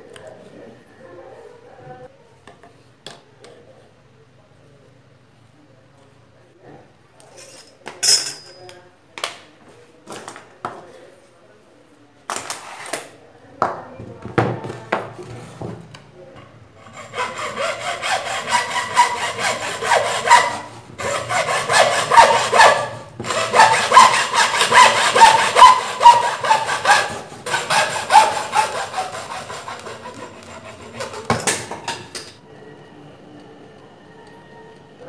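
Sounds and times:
hacksaw strokes: 0:16.8 - 0:31.7.

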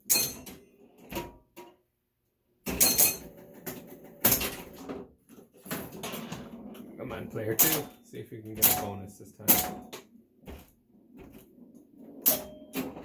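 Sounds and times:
pinball machine clacking: 0:05.8 - 0:10.0, 0:12.1 - 0:13.0.

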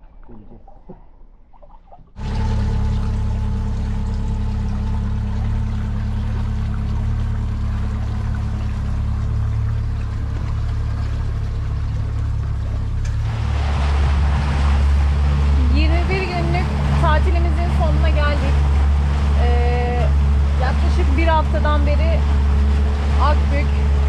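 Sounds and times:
water rushing past hull: 0:01.4 - 0:24.0
outboard motor running: 0:02.1 - 0:24.0.

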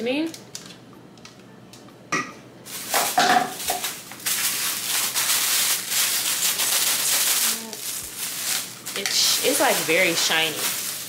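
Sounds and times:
plastic bag crinkling: 0:02.7 - 0:11.0.

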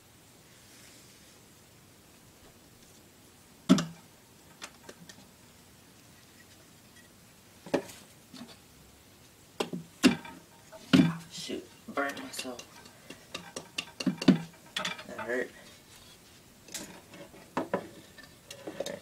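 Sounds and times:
hard objects knocking and clattering: 0:03.7 - 0:05.2, 0:09.6 - 0:11.3, 0:12.1 - 0:15.4, 0:16.7 - 0:19.0.

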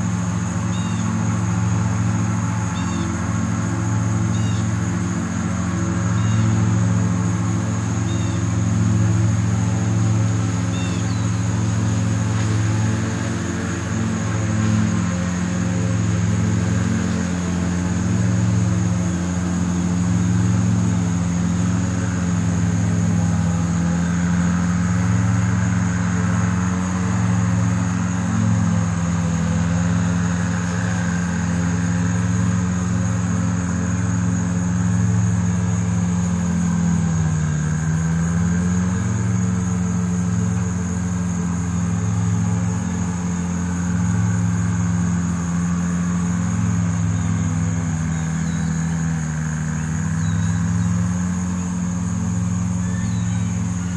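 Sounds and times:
engine humming: 0:00.0 - 0:53.9.

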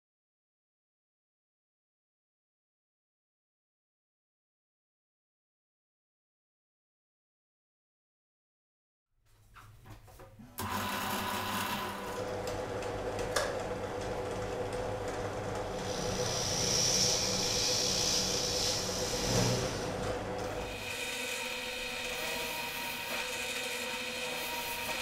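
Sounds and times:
drill press motor running: 0:10.6 - 0:25.0
drill bit hissing through plywood: 0:15.7 - 0:19.9.

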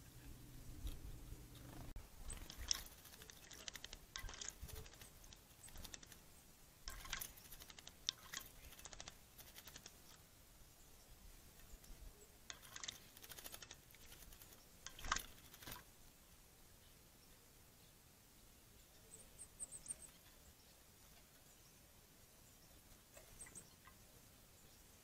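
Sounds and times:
bird splashing in water: 0:02.3 - 0:06.2, 0:06.9 - 0:10.2, 0:12.5 - 0:15.9.

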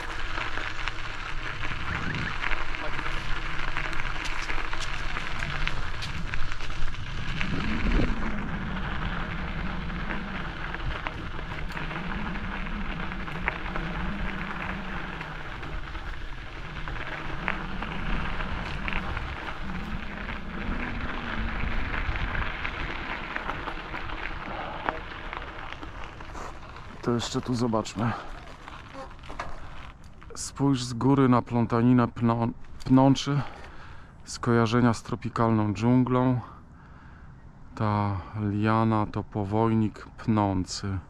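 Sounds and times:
low hum: 0:00.0 - 0:30.1
bicycle tyres crunching: 0:00.0 - 0:36.1.

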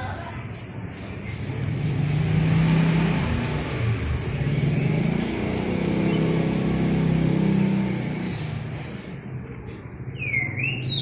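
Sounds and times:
vehicle engine revving: 0:01.2 - 0:09.6.

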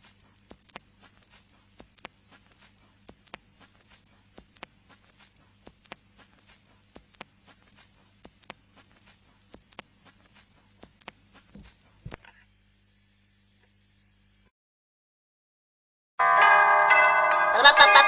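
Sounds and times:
vinyl crackles and pops: 0:00.0 - 0:12.6.

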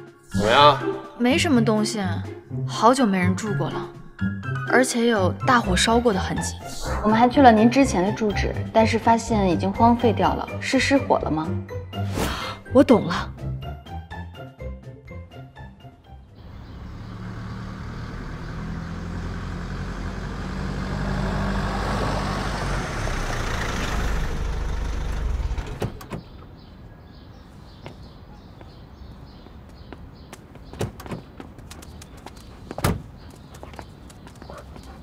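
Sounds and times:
car engine and tyre noise: 0:16.4 - 0:26.6, 0:29.6 - 0:35.0
car door clicks: 0:32.8 - 0:33.1.

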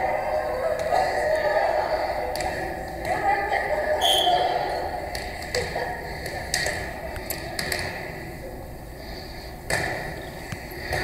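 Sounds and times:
hands slapping volleyball: 0:02.3 - 0:03.2.

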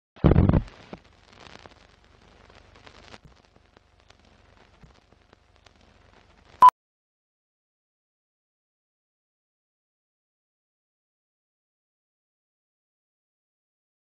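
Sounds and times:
old film crackle and pops: 0:00.3 - 0:06.6.

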